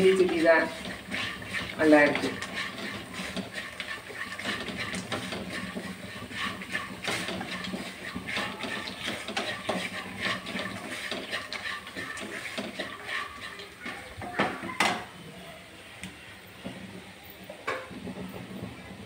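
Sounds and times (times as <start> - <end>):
wooden spatula scraping a pan: 0.0 - 15.1, 17.7 - 19.0
food sizzling in oil: 0.0 - 15.2.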